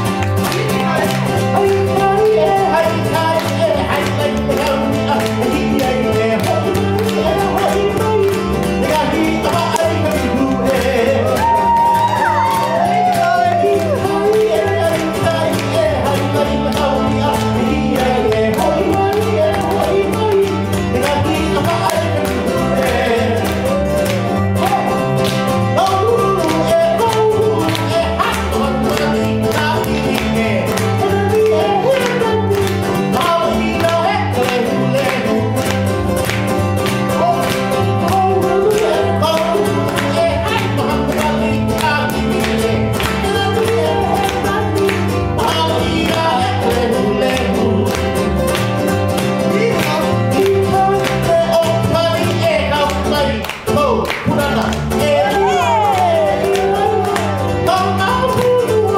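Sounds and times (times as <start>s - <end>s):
man singing: 0.0s - 58.9s
plucked double bass: 0.0s - 58.9s
strummed ukulele: 0.0s - 58.9s.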